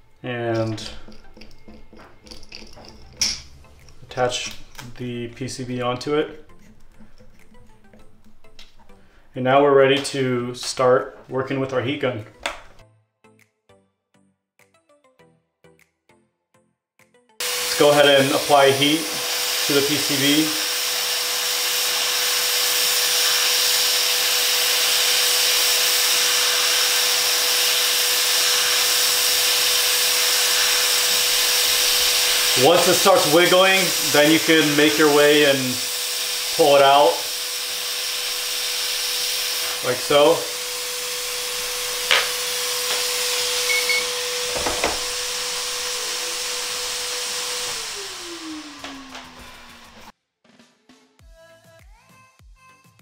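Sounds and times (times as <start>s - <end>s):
tools knocking: 0.6s - 4.0s, 42.1s - 43.1s, 44.5s - 45.1s
heat gun hissing: 17.4s - 50.1s.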